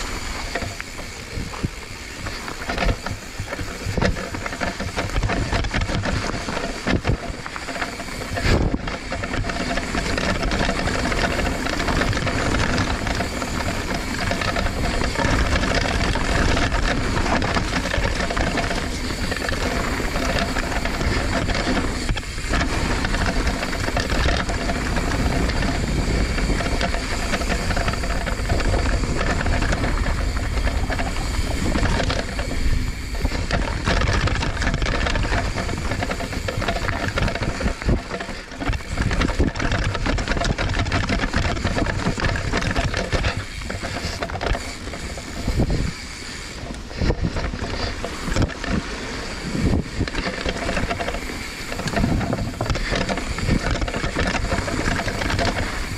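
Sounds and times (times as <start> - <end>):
bike rattling over bumps: 0.0 - 55.9
bike tyres rolling on dirt: 0.0 - 55.9.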